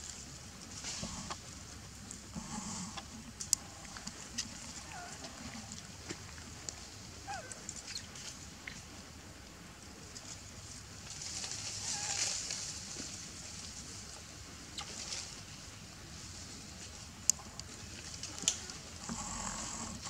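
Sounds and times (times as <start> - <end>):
soft rustling and crackling: 0.0 - 20.0.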